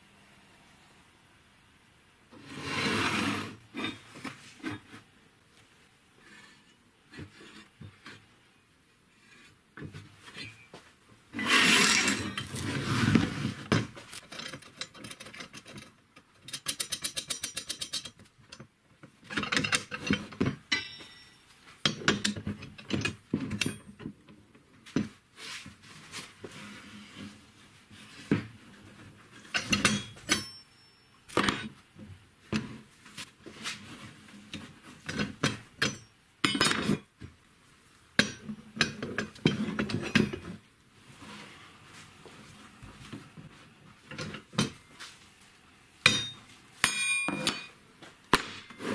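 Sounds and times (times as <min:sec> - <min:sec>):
metal strips clanking and scraping: 0:11.4 - 0:18.2.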